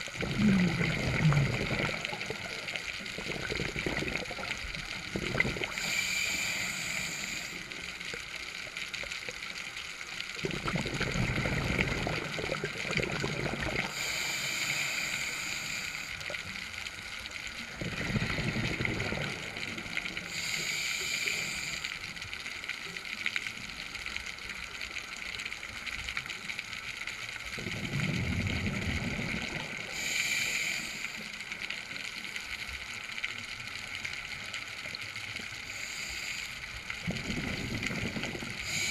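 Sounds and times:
underwater bubbling rumbles: 0:00.0 - 0:05.9, 0:10.4 - 0:14.0, 0:17.6 - 0:20.2, 0:27.6 - 0:29.9, 0:37.0 - 0:38.9
diver breathing through regulator: 0:05.6 - 0:07.7, 0:13.8 - 0:16.4, 0:20.2 - 0:21.9, 0:29.9 - 0:31.3, 0:35.6 - 0:38.9.

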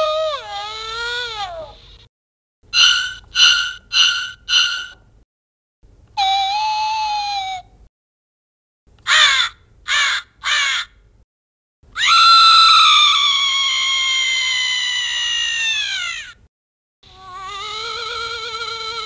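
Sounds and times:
long cry sliding down in pitch: 0:02.8 - 0:05.0, 0:12.0 - 0:16.4
wavering sound: 0:02.8 - 0:05.0
recorded crow cawing through speaker: 0:09.0 - 0:11.0.

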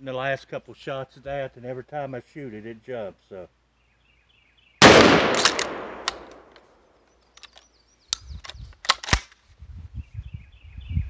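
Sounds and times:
shotgun shot echoing: 0:04.8 - 0:06.6
gun action clicking and clacking: 0:04.8 - 0:09.4.

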